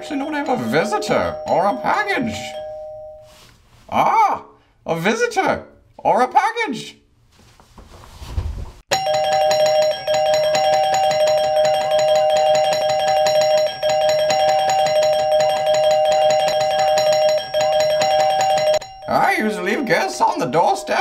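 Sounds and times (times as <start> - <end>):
two-tone doorbell chime: 0.0 - 3.4, 8.9 - 21.0.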